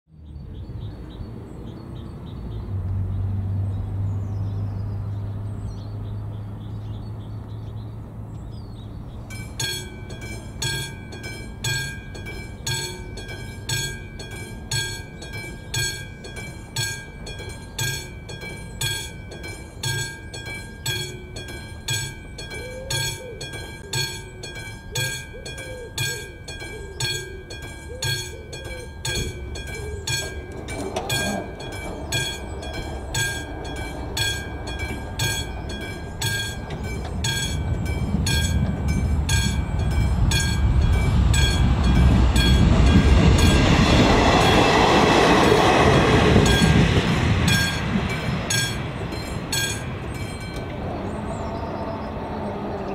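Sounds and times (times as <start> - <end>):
level-crossing warning bell: 8.8 - 52.9.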